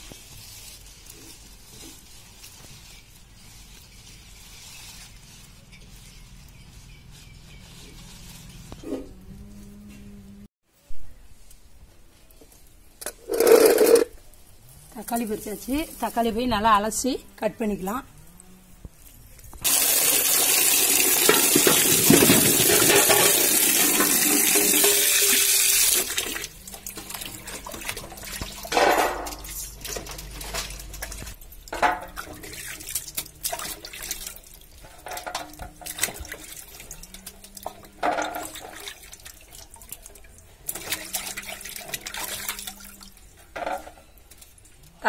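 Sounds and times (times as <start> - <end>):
water pouring into metal basin: 19.6 - 43.2.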